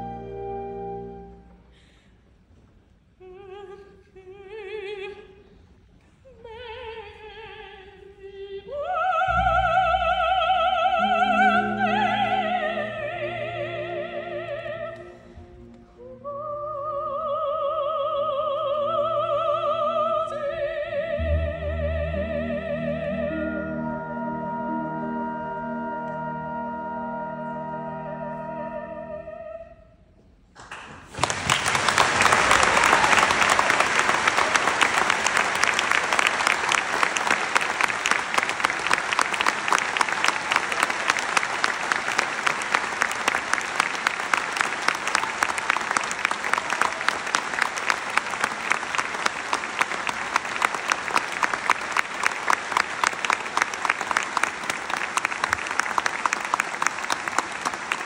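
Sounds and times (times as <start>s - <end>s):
orchestra chord: 9.3s - 16.1s, 21.2s - 29.2s
audience applause: 30.6s - 58.0s.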